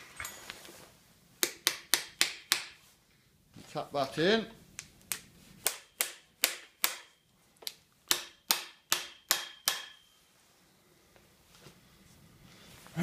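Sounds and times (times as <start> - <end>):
hammer tapping on steel: 8.1 - 10.1.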